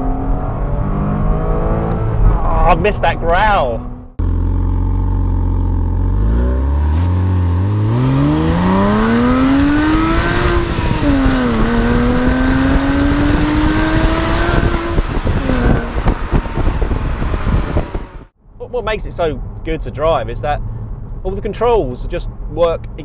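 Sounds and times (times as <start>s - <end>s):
car engine revving: 0.0s - 18.3s
road noise: 0.0s - 23.0s
wind noise: 8.0s - 18.3s.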